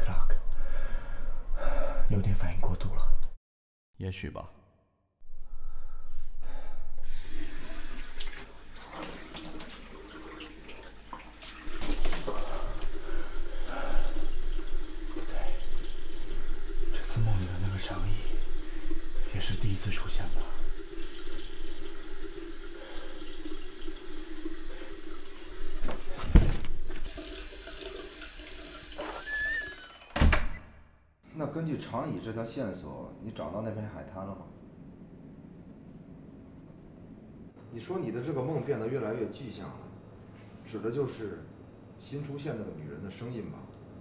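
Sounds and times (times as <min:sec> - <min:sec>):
water splashing: 0:07.2 - 0:26.2.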